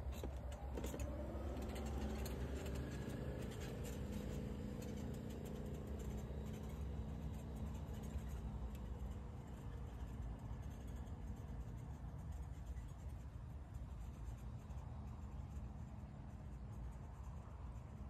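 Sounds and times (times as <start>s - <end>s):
golf cart motor whine: 0.0s - 9.8s.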